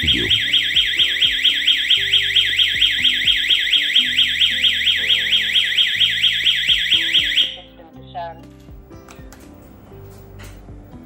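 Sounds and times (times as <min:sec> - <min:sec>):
burglar alarm siren wailing: 0:00.0 - 0:07.7.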